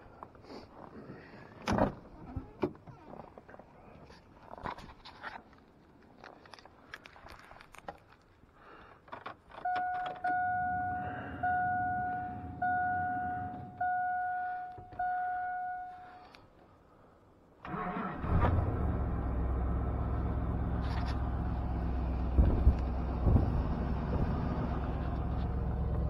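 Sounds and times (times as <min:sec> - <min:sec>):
dashboard warning chime: 0:09.6 - 0:16.2
engine cranking and idling: 0:17.6 - 0:26.0.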